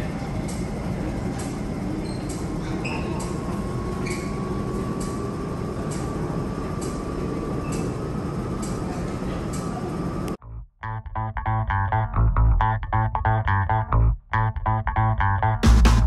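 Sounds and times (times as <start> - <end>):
electric train rumbling: 0.0 - 10.4.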